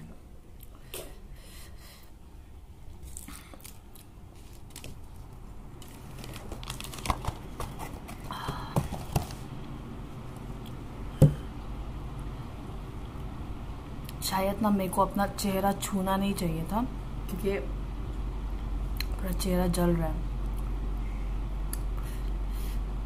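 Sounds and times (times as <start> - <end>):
fan running: 0.0 - 23.0
hands crinkling and knocking: 3.1 - 9.5.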